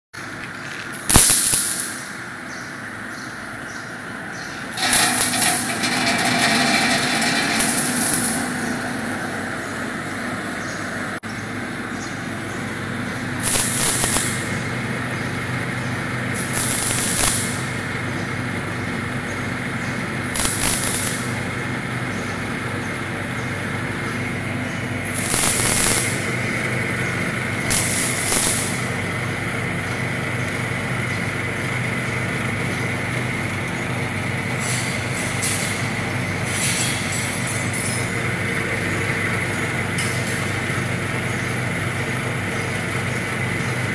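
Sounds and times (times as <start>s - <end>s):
loud hissing bursts: 1.1s - 2.1s, 13.4s - 14.6s, 16.4s - 17.7s, 20.4s - 21.4s, 25.0s - 26.5s, 27.6s - 29.0s
grinding mill motor hum: 2.8s - 36.5s.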